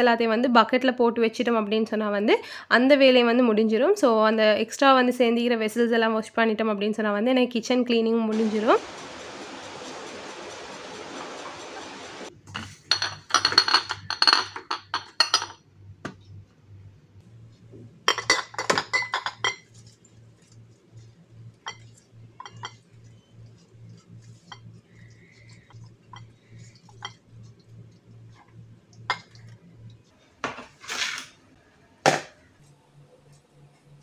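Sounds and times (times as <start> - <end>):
glass jars clinking: 12.9 - 15.6.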